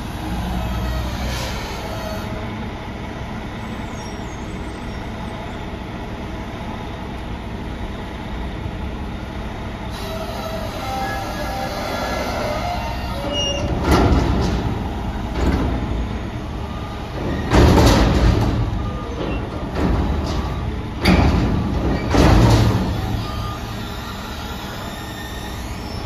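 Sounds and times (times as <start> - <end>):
garbage truck engine running: 0.0 - 26.0
dumpster banging and crashing: 10.0 - 25.6
trash falling: 13.6 - 23.6.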